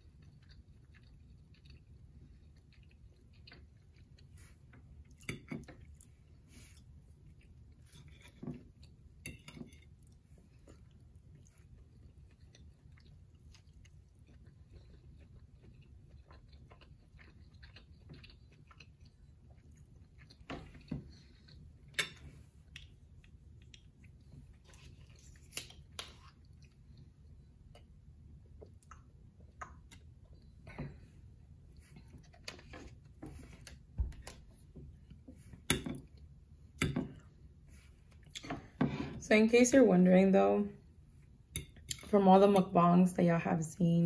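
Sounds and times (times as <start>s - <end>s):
chewing and biting food: 0.0s - 35.3s
faint low hum: 0.0s - 44.0s.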